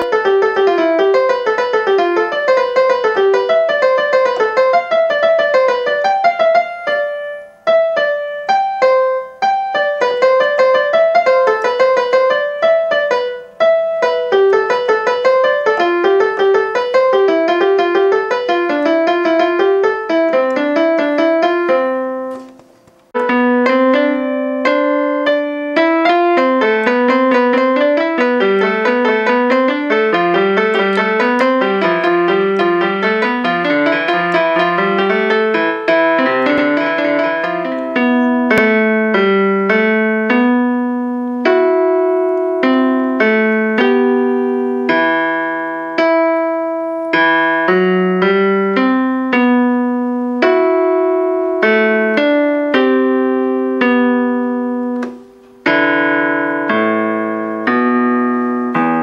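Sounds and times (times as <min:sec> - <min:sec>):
electronic keyboard piano melody: 0:00.0 - 0:59.0.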